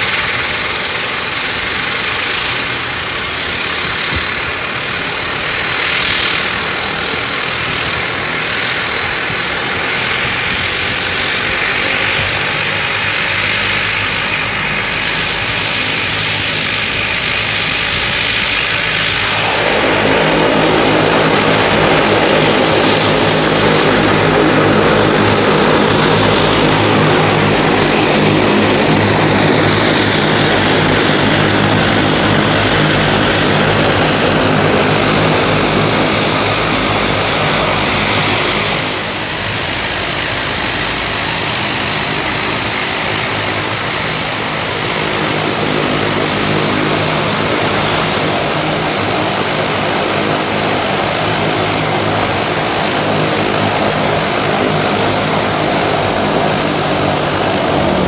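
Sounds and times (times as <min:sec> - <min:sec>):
turboprop propeller drone: 0:00.0 - 0:58.0
faint high whine: 0:18.0 - 0:31.3.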